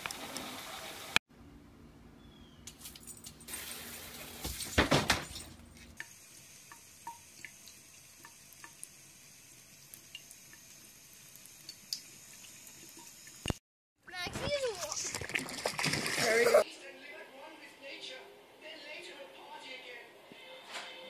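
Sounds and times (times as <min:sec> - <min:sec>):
water drips and plinks: 0:05.3 - 0:09.0, 0:09.8 - 0:13.6
tap water running into sink: 0:06.0 - 0:13.6.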